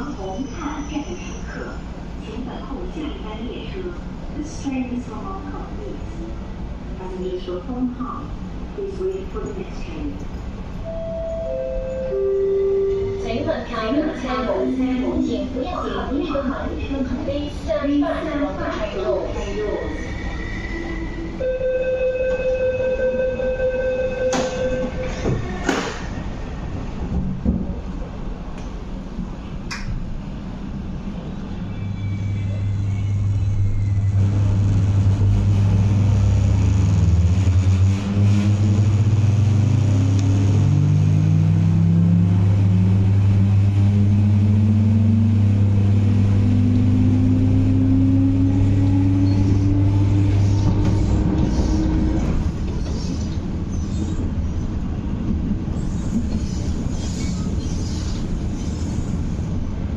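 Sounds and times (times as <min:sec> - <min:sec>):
wheels rumbling on track: 0:22.1 - 0:59.9
low hum: 0:31.7 - 0:53.3
train traction motors whining: 0:32.0 - 0:54.3.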